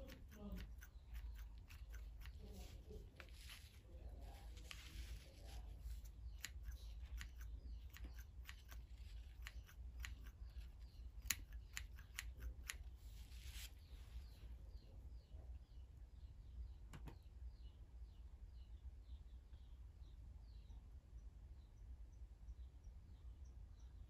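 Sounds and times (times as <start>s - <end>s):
scissors snipping twine: 0.0s - 3.6s, 4.6s - 12.9s
soft rustling: 0.3s - 11.4s, 12.4s - 14.7s.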